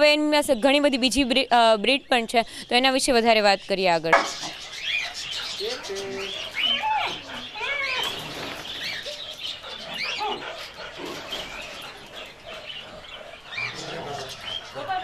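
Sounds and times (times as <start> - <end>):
dog barking and yelping: 4.3 - 15.0.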